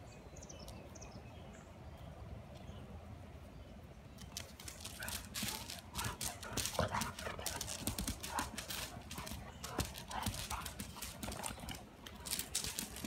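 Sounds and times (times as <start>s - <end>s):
dog claws clicking on concrete: 4.2s - 13.0s.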